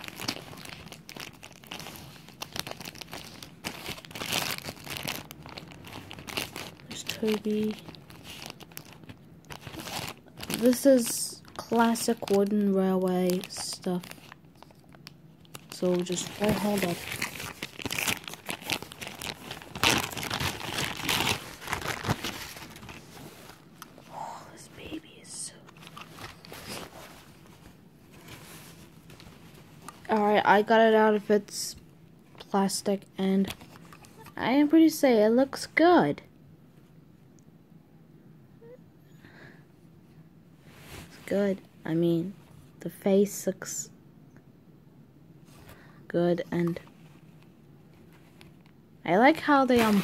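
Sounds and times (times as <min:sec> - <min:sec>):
plastic bag crinkling: 0:00.0 - 0:23.9, 0:24.5 - 0:31.3, 0:49.4 - 0:50.0.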